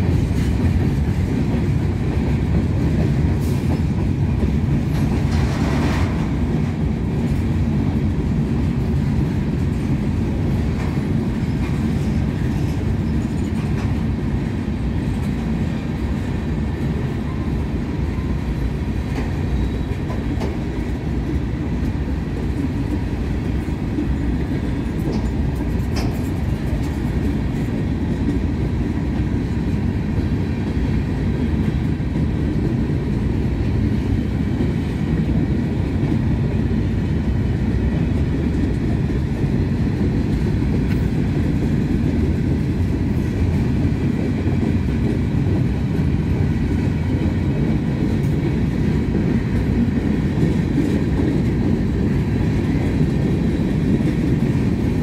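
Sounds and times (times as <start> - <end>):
wheels clacking over rail joints: 0.0 - 32.7
freight train wheels rumbling: 0.0 - 55.0.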